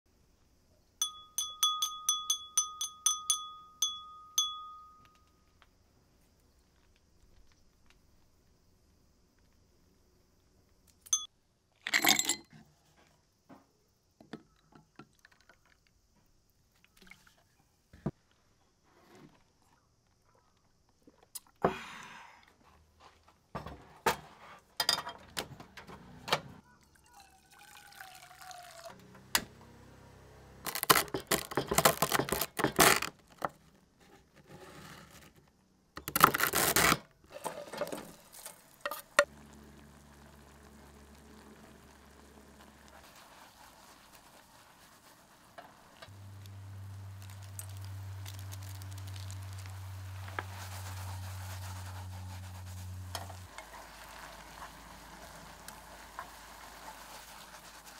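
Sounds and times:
water pouring into a pan: 0:26.9 - 0:29.0, 0:37.9 - 0:51.9, 0:53.4 - 0:57.9
handling noises: 0:30.6 - 0:34.4.

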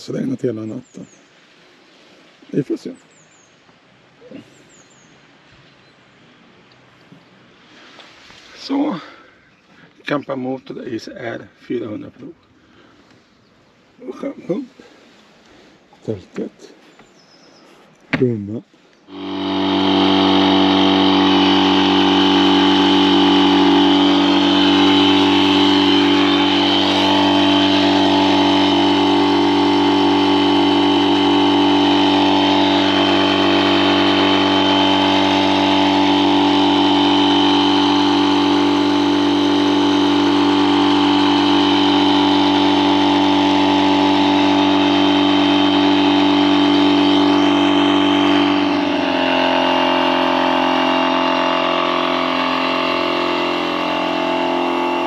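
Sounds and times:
electric air pump humming: 0:19.0 - 0:55.0.

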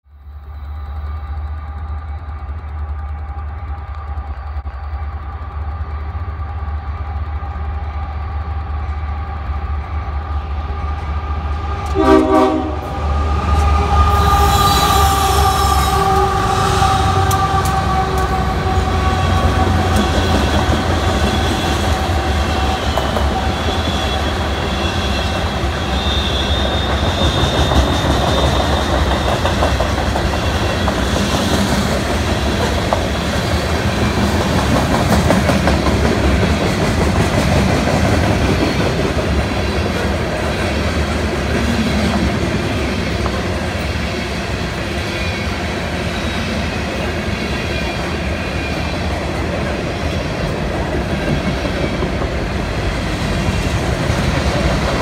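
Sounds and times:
locomotive horn: 0:10.7 - 0:29.1
wheel squeal: 0:22.5 - 0:29.6.

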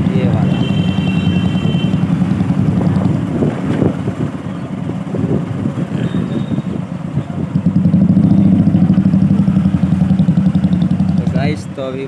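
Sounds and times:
motorcycle engine running: 0:00.0 - 0:12.0
wind buffeting microphone: 0:01.5 - 0:09.5.

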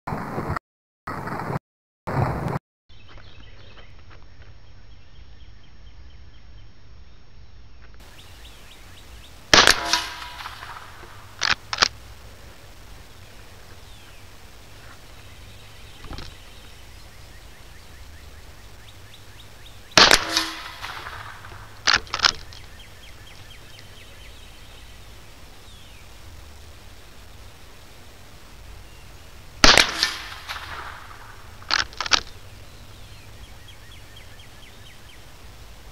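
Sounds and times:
gunshots: 0:09.4 - 0:12.0, 0:20.0 - 0:22.5, 0:29.6 - 0:32.3.

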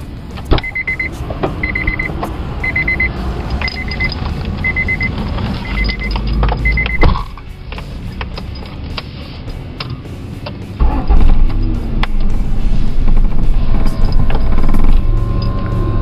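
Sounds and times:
car warning chime beeping: 0:00.5 - 0:07.2.

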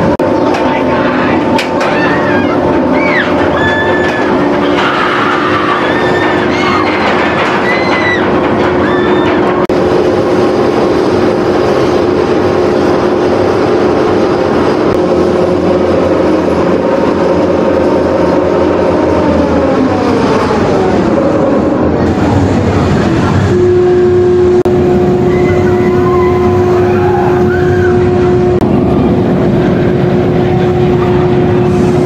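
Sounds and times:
chain lift drive hum: 0:00.0 - 0:32.0
chain and track clattering: 0:01.6 - 0:09.7.

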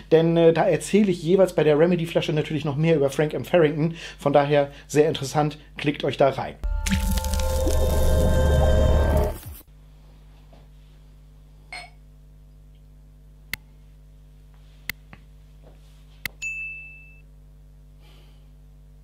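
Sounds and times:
low steady hum: 0:06.6 - 0:19.0
glassware clicks and taps: 0:11.7 - 0:12.0
glass clinking with high ring: 0:16.4 - 0:17.2.

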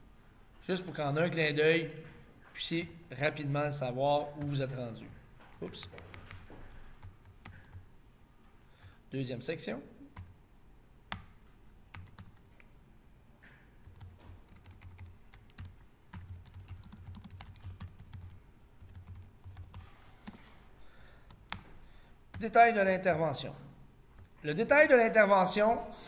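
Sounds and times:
computer keyboard typing: 0:05.5 - 0:07.8, 0:11.9 - 0:12.4, 0:13.8 - 0:20.6, 0:21.3 - 0:21.7.

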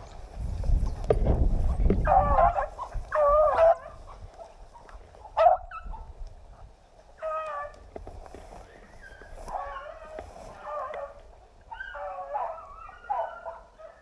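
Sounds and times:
low rumble on microphone: 0:00.0 - 0:04.3
dogs baying: 0:02.0 - 0:06.1, 0:09.0 - 0:14.0.

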